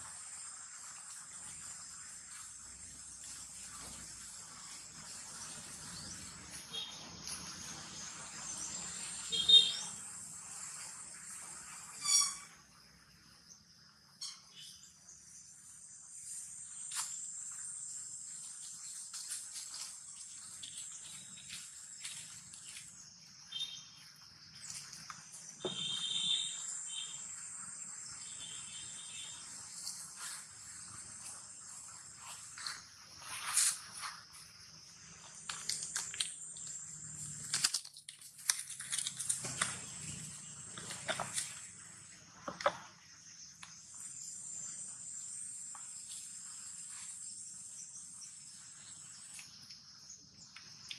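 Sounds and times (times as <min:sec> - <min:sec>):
insects chirring: 0:00.0 - 0:50.9
rustling in dry leaf litter: 0:16.2 - 0:23.7, 0:29.3 - 0:41.8.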